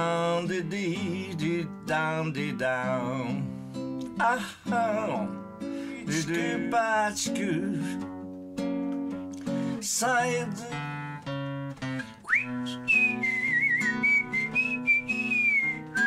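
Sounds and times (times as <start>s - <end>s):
man singing: 0.0s - 8.1s, 9.7s - 11.2s
acoustic guitar strumming chords: 0.0s - 16.0s
whistled melody: 12.0s - 16.0s.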